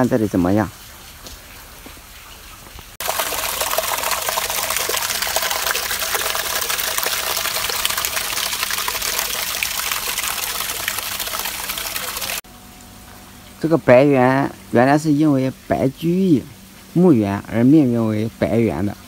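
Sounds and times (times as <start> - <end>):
water splashing over rocks: 2.8 - 12.4.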